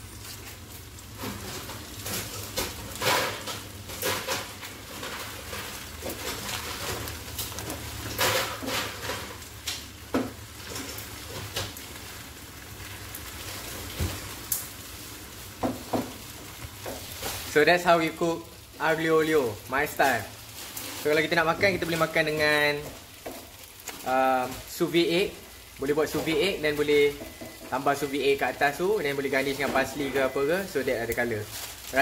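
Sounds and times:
low sizzle: 0.0 - 32.0
wooden spatula scraping a pan: 0.2 - 9.8, 15.6 - 18.3, 19.3 - 24.9.

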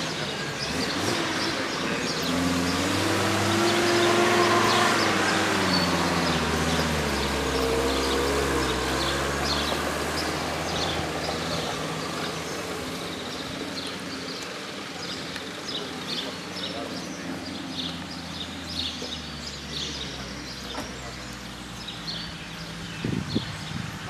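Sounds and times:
minibus engines running: 0.0 - 24.0.

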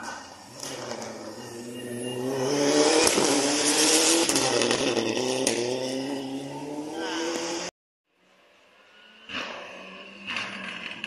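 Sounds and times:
rally car engine passing: 0.5 - 7.7.

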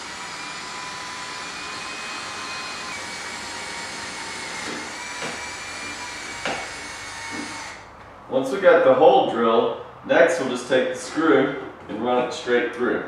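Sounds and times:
cordless drill drilling metal: 0.0 - 7.9.

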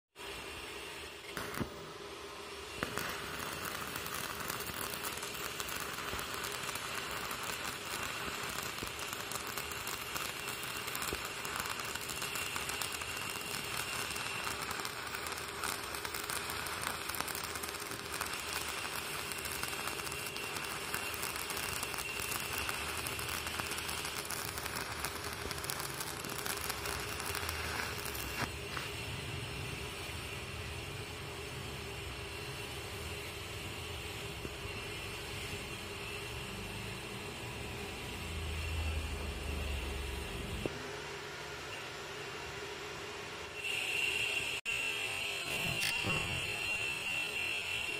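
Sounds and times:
arc welding crackling: 0.2 - 42.0, 43.2 - 47.9.

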